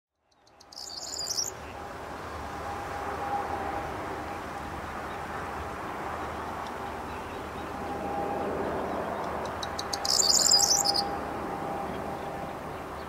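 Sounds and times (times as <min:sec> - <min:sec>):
bird song with jangling trill: 0:00.3 - 0:01.5, 0:09.9 - 0:11.0.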